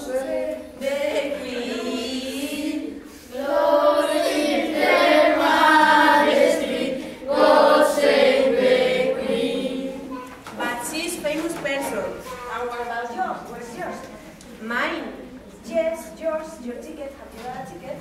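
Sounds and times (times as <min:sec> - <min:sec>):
young people singing unaccompanied: 0:00.0 - 0:10.5.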